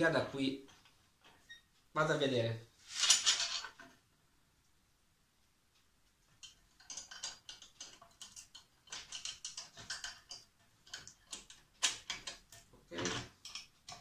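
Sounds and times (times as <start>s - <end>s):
small metal clicks: 6.2s - 14.0s.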